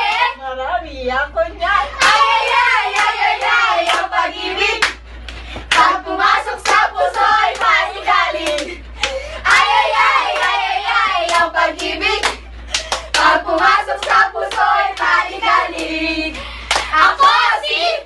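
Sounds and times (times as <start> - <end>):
group singing and shouting: 0.0 - 0.5, 1.4 - 18.0
hand claps: 2.0 - 4.1, 4.8 - 7.8, 8.4 - 9.6, 10.3 - 10.6, 11.2 - 16.0, 16.7 - 16.9.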